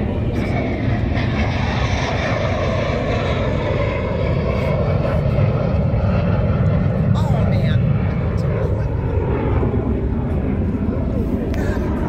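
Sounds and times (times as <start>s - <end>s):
jet aircraft flying past: 0.0s - 12.0s.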